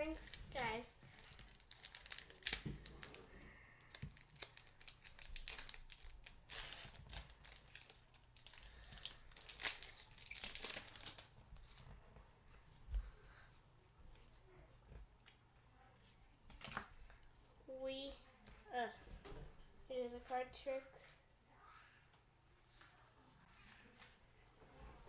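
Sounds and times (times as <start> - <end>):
foil wrapper tearing and crinkling: 0.1 - 3.2, 3.9 - 11.8.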